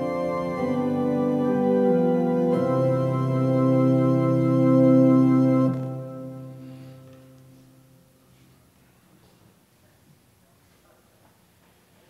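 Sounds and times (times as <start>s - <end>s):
organ chords: 0.0s - 8.2s.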